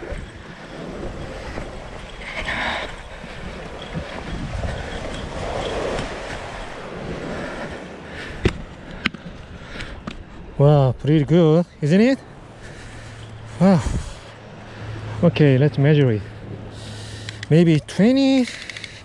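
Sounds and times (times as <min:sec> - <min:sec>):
small waves washing on sand: 0:00.0 - 0:09.8
wind buffeting microphone: 0:00.0 - 0:11.0, 0:13.4 - 0:15.2.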